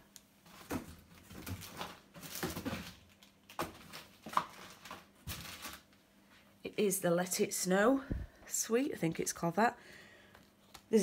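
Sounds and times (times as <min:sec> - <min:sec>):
plastic wrapping rustling: 0:00.4 - 0:06.0.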